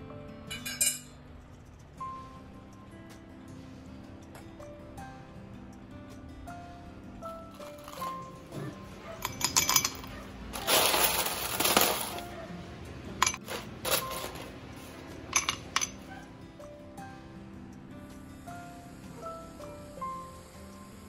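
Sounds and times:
ice cubes clinking in glass: 0:07.5 - 0:08.2, 0:09.2 - 0:12.3, 0:13.2 - 0:14.6, 0:15.3 - 0:16.0
ice rattling: 0:07.5 - 0:08.2, 0:09.2 - 0:12.3, 0:13.2 - 0:16.0.

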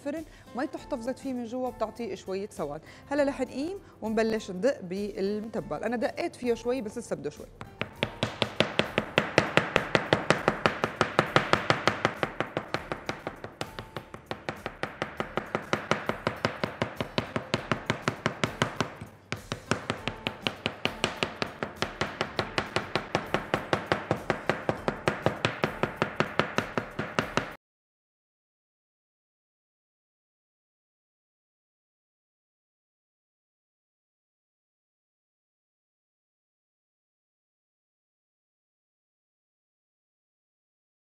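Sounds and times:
knife chopping on plastic cutting board: 0:07.6 - 0:27.6.

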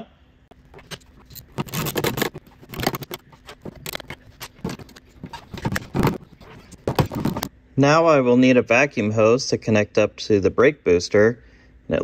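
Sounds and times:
wrench clicking and scraping: 0:00.6 - 0:07.5.

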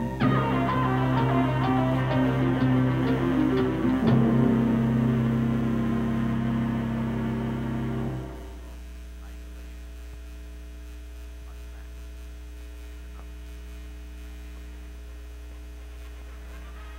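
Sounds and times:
closing music: 0:00.0 - 0:08.7
electrical mains hum: 0:00.0 - 0:16.9
faint steady tones: 0:00.0 - 0:16.9.

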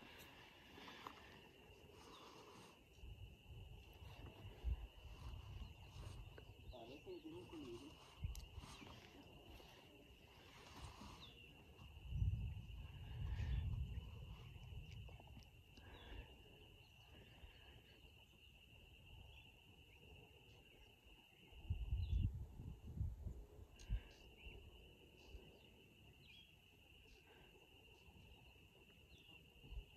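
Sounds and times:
faint bird chirps: 0:00.0 - 0:29.9
wind rumble on microphone: 0:03.0 - 0:06.8, 0:10.5 - 0:16.0, 0:21.4 - 0:24.8.

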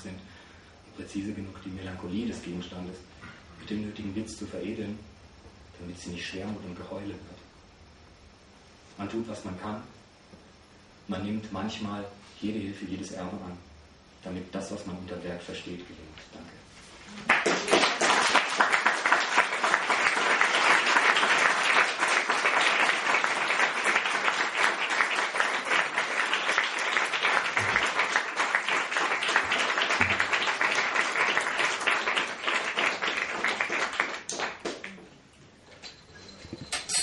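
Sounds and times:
audience applauding: 0:17.2 - 0:35.0.

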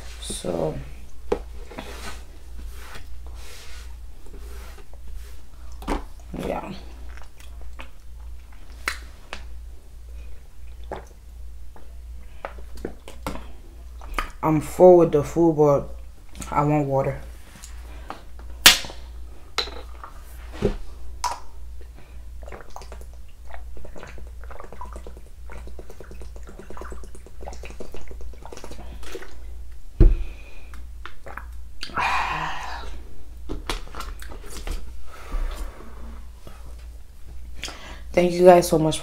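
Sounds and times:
steady low hum: 0:00.0 - 0:39.0
person gulping water: 0:22.4 - 0:29.5, 0:31.0 - 0:33.0.

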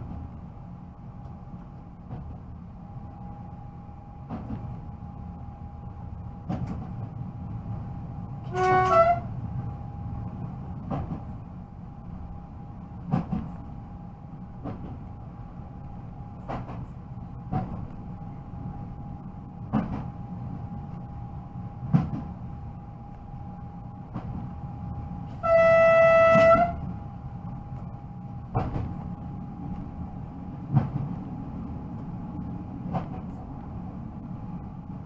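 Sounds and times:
electric train rumble and whine: 0:00.0 - 0:35.0
train horn blast: 0:08.4 - 0:09.4, 0:25.3 - 0:26.9.

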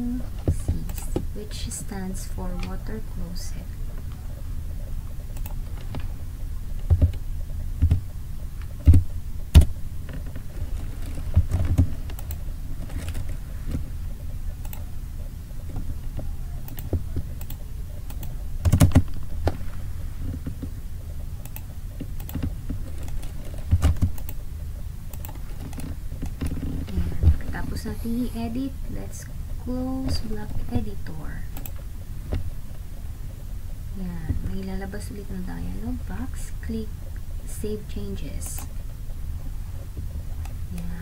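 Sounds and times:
steady low hum: 0:00.0 - 0:41.0
keyboard and mouse clicking: 0:05.3 - 0:06.1, 0:07.8 - 0:14.9, 0:15.6 - 0:19.6, 0:21.4 - 0:24.5, 0:25.1 - 0:27.9, 0:31.5 - 0:32.4.

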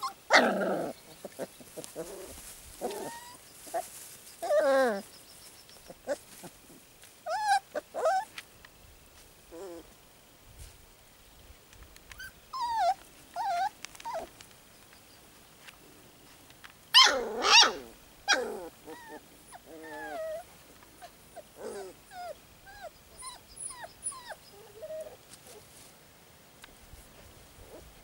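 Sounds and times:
puppies yelping and whining: 0:00.0 - 0:05.1, 0:07.3 - 0:08.3, 0:12.2 - 0:14.3, 0:17.0 - 0:25.6.

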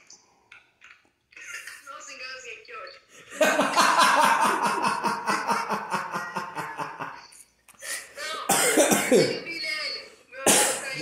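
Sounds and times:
man laughing hard: 0:03.4 - 0:07.2.

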